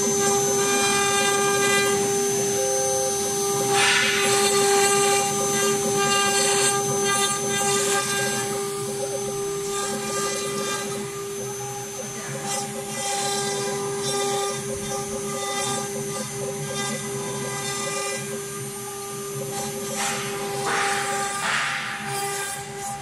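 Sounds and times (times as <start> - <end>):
router spindle high whine: 0.0 - 23.0
bit hissing as it cuts wood: 18.8 - 23.0.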